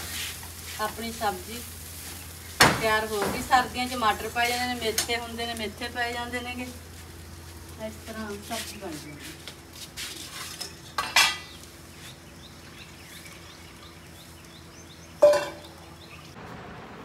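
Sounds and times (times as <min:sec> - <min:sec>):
metal utensils clanking: 0:10.3 - 0:11.6, 0:15.2 - 0:15.7.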